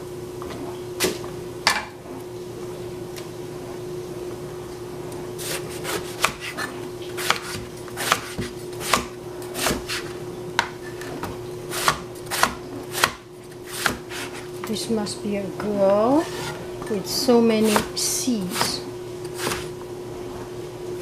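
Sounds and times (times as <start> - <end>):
knife chopping on board: 5.4 - 10.7, 11.7 - 14.5, 17.6 - 19.7.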